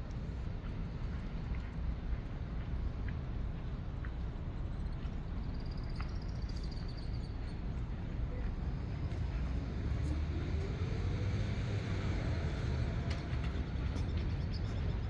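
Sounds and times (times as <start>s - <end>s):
distant traffic rumble: 0.0s - 15.0s
vehicle engine speeding up: 9.6s - 13.6s.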